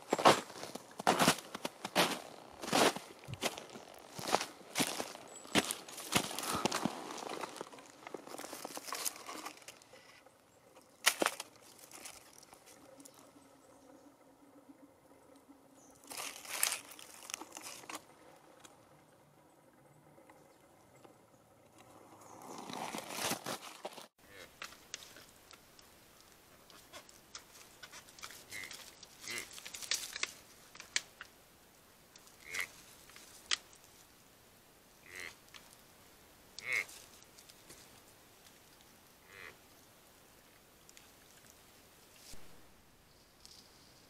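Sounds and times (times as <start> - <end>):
dry leaves rustling and crunching: 0.0 - 9.8, 16.0 - 18.0, 22.4 - 24.1, 27.4 - 31.1.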